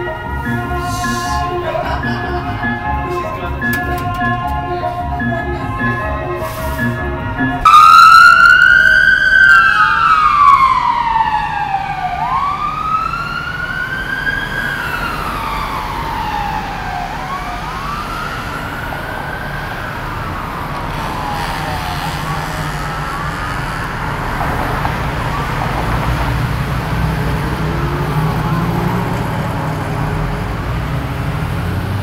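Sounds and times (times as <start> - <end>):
music: 0.0 - 7.7
emergency vehicle siren wailing: 0.0 - 32.0.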